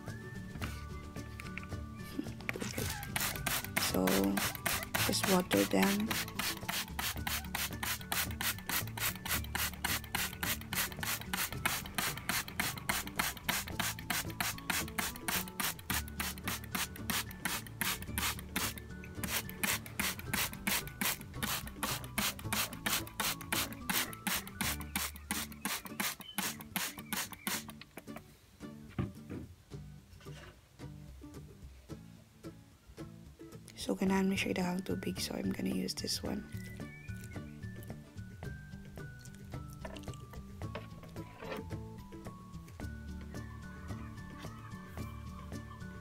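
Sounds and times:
spray bottle squirting: 0:02.4 - 0:28.2.

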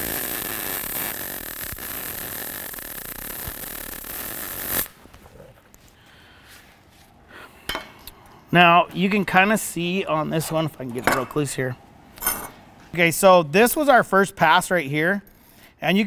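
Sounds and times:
welding arc crackling sizzle: 0:00.0 - 0:05.4.

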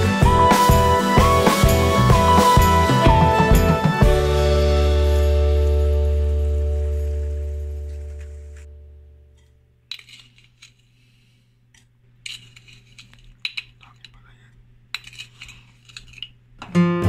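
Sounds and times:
spoon clinking and scraping: 0:09.9 - 0:10.9, 0:12.2 - 0:14.3, 0:14.9 - 0:16.4.

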